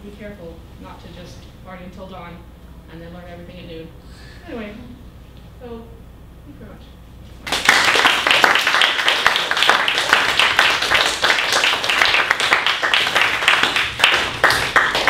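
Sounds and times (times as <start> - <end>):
audience clapping: 7.4 - 15.0.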